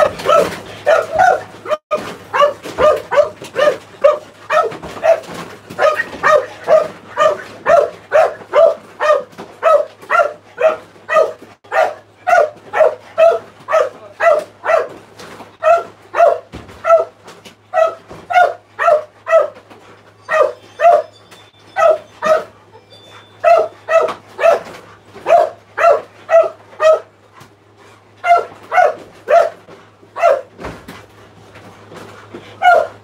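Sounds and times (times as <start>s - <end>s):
dog barking: 0.0s - 15.0s, 15.6s - 19.6s, 20.2s - 27.1s, 28.2s - 29.6s, 30.2s - 30.6s, 32.5s - 33.0s.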